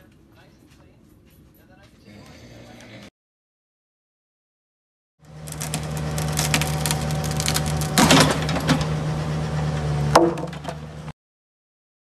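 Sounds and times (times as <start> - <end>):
mini excavator engine running: 5.2 - 11.1
loud clatter: 5.5 - 8.9.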